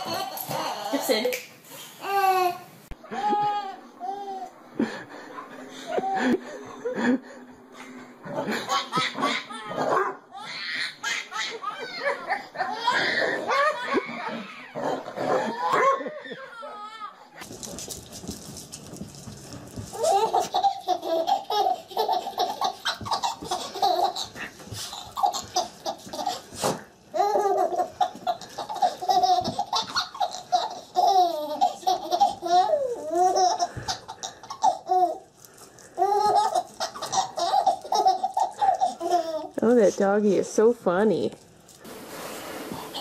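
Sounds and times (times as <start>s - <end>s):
baby laughing: 0.0s - 1.2s, 8.4s - 17.1s, 19.9s - 35.3s, 36.0s - 39.6s.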